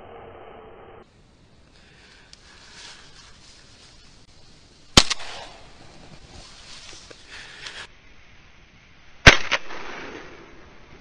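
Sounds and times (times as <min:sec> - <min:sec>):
shotgun shot: 0:05.0 - 0:05.6, 0:09.3 - 0:10.6.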